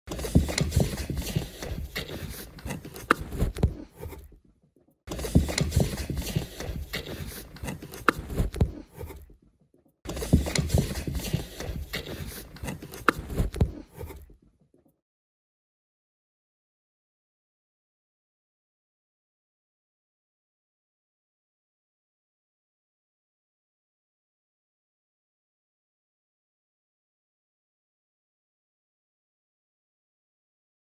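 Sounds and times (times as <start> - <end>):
cardboard box rustling and scraping: 0.1 - 4.4, 5.1 - 9.4, 10.1 - 14.4
cardboard crinkles and knocks: 0.1 - 4.4, 5.1 - 9.3, 10.1 - 14.3.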